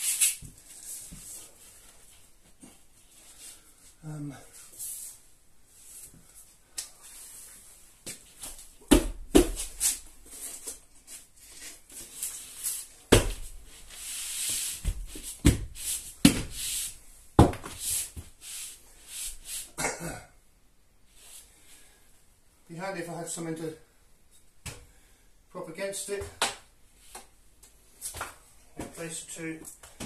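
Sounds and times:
hand thumping plasterboard: 14.5 - 16.7.

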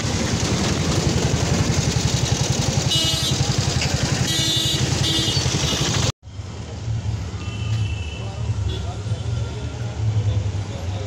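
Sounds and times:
vehicle engine running: 0.0 - 6.1
road traffic: 0.0 - 11.0.

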